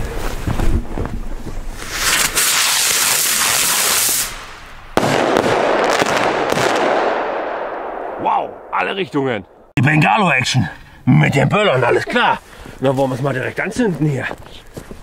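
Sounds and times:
fireworks hissing spray of sparks: 0:01.8 - 0:04.7
firework sharp crack and crackling: 0:01.8 - 0:08.2.

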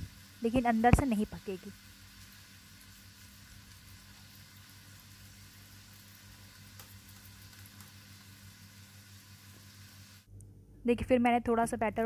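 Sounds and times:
food sizzling in a pan: 0:00.0 - 0:10.3.

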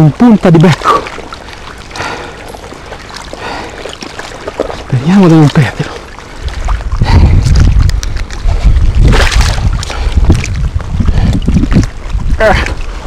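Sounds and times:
fish splashing in water: 0:00.7 - 0:13.0
wind buffeting microphone: 0:04.4 - 0:13.0.

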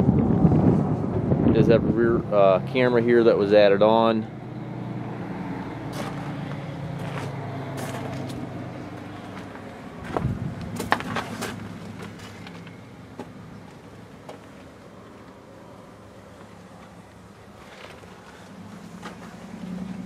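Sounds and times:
footsteps on gravel: 0:05.9 - 0:14.6.

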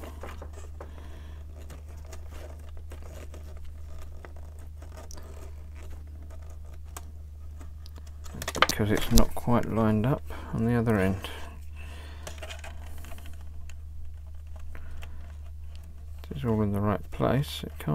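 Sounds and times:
clicks and scrapes of parts: 0:00.0 - 0:09.4, 0:12.0 - 0:16.5
steady low hum: 0:00.0 - 0:17.9.

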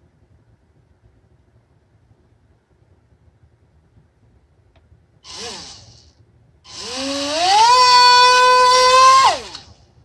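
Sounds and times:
electric motor propeller whine: 0:05.3 - 0:06.1, 0:06.7 - 0:09.8.

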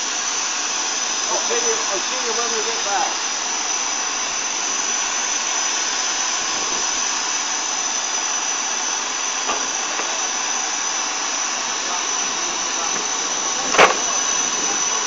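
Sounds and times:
steam hissing from locomotive: 0:00.0 - 0:15.0.

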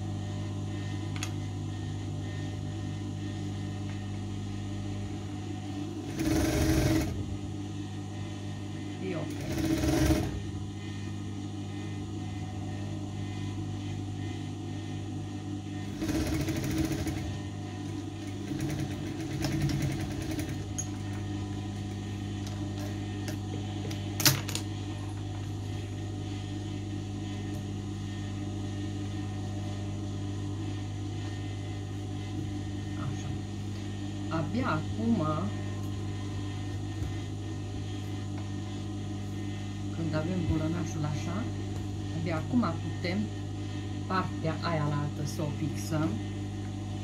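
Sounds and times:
low motor hum: 0:00.0 - 0:47.0
sewing machine stitching: 0:06.1 - 0:07.2, 0:09.3 - 0:10.4, 0:15.9 - 0:17.3, 0:18.3 - 0:20.6.

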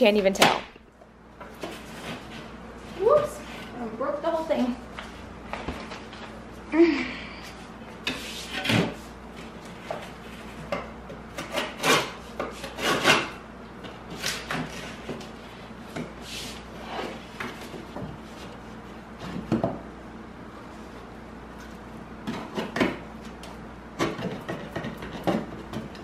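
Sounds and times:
knife scraping drywall: 0:09.9 - 0:13.4.

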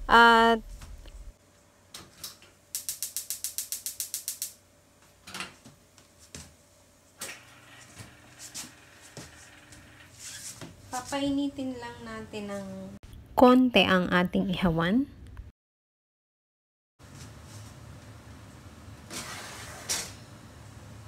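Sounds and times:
gas igniter clicking rapidly: 0:02.8 - 0:04.6.

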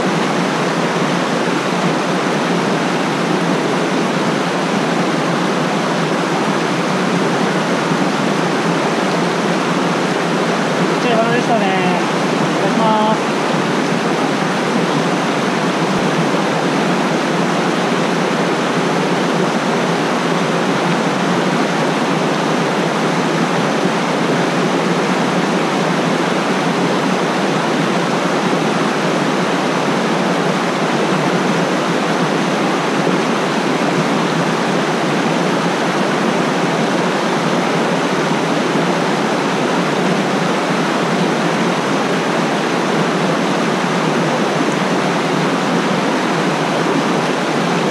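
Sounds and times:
stream rushing over rocks: 0:00.0 - 0:47.9.

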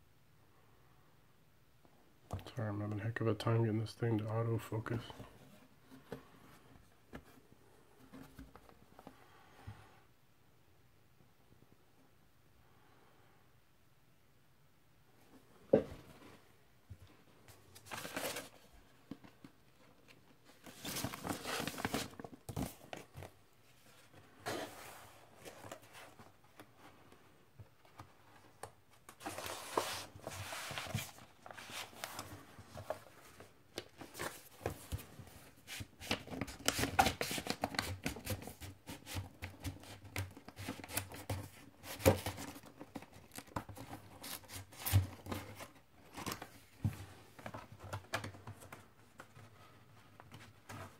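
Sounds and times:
paper rustling and crinkling: 0:17.5 - 0:27.2, 0:27.8 - 0:50.9.

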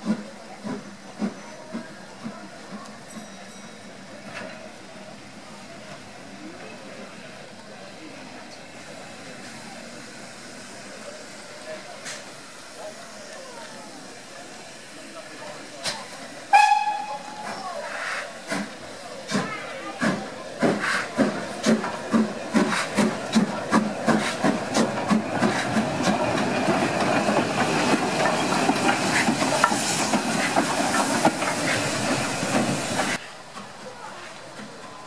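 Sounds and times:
steam locomotive exhaust beats: 0:09.3 - 0:35.0.

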